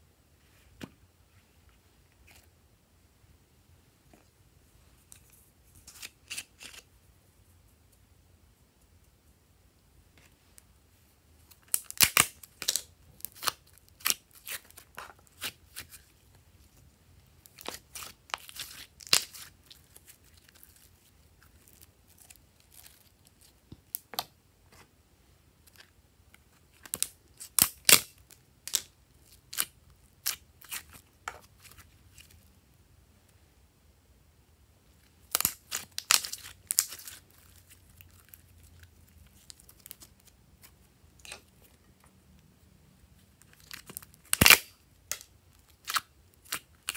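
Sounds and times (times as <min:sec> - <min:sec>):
slime crackling and popping: 0:11.5 - 0:16.0, 0:17.4 - 0:24.0, 0:35.2 - 0:41.4, 0:43.6 - 0:46.9.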